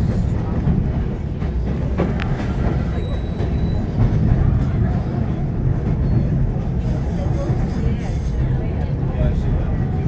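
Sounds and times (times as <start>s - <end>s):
train wheels rumbling on rails: 0.0s - 10.0s
faint high squeal: 2.9s - 3.9s.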